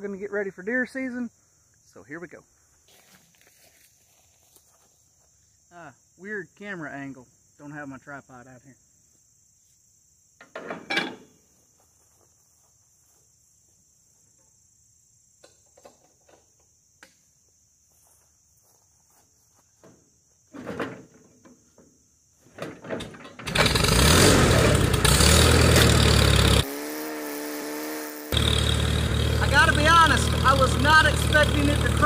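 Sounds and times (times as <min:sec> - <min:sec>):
engine hand cranking: 0:23.0 - 0:26.6
tractor engine running loudly: 0:23.4 - 0:32.0.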